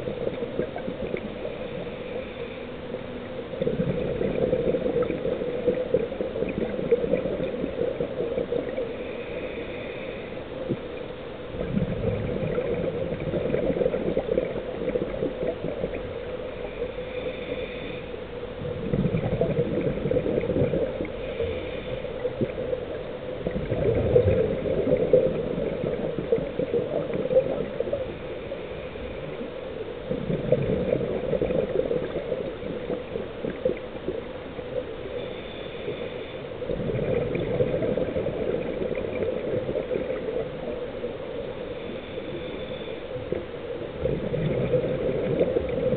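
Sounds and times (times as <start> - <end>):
exhaled bubbles gurgling: 0.0 - 45.9
steady hum: 0.0 - 45.9.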